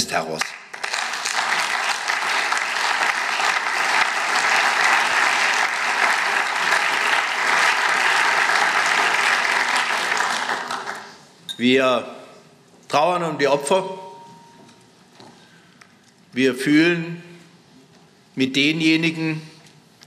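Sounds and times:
crowd applause: 0.7 - 11.3.

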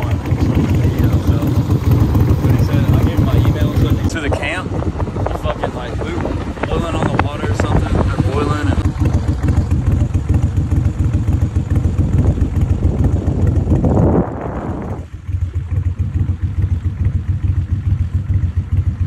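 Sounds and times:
outboard motor running: 0.0 - 19.0.

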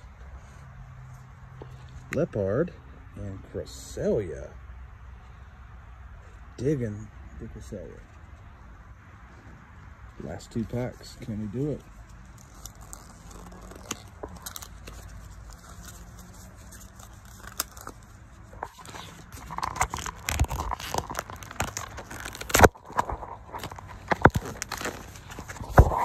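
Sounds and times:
foil wrapper crinkling and tearing: 10.6 - 26.0.

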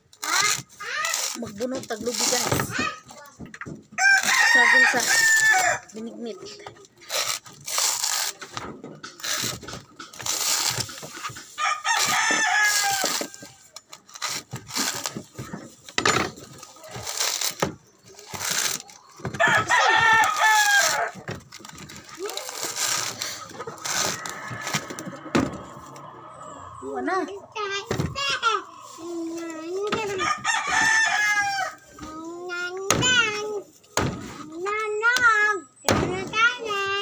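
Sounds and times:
husk tearing apart: 0.1 - 3.1, 6.9 - 25.9
machete splitting coconut husk: 7.1 - 13.5, 16.8 - 25.4
rooster crowing: 19.4 - 21.1, 23.9 - 27.0, 30.2 - 31.9.

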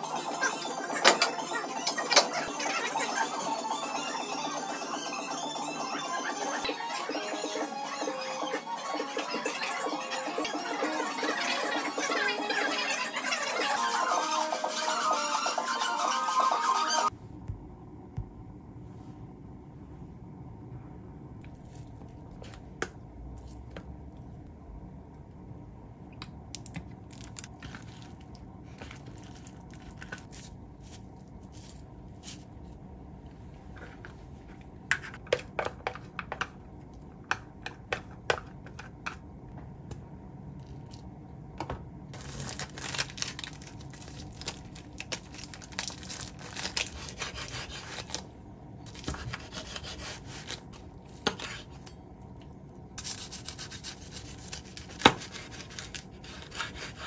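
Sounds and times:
dried seaweed rustling: 42.2 - 48.2.

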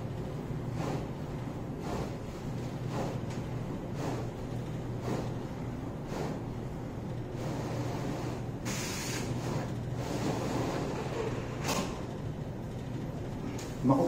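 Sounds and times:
printer humming: 0.0 - 14.0.

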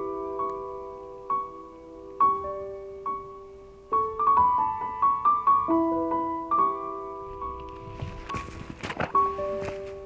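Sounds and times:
solo piano music: 0.0 - 10.0.

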